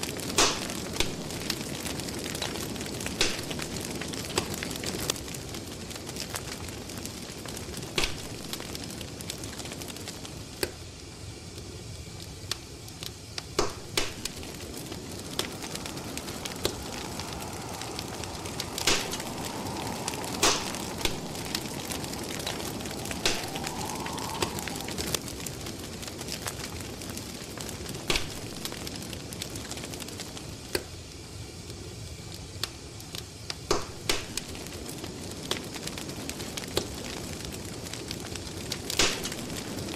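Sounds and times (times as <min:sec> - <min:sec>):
fire crackling and popping: 0:00.0 - 0:39.9
faint whistling tone: 0:14.5 - 0:25.2.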